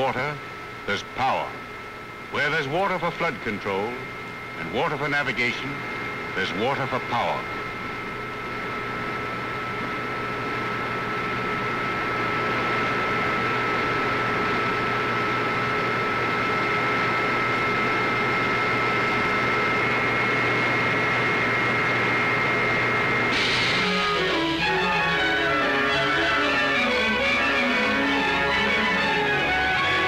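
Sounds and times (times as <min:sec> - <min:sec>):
electrical machinery whine: 0:00.0 - 0:30.0
hiss: 0:23.3 - 0:24.2.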